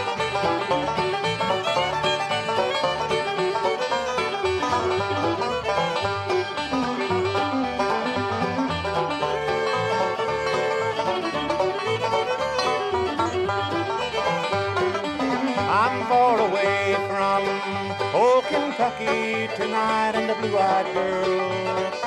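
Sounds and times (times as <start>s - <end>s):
bluegrass band playing: 0.0s - 22.0s
sliding notes: 0.0s - 22.0s.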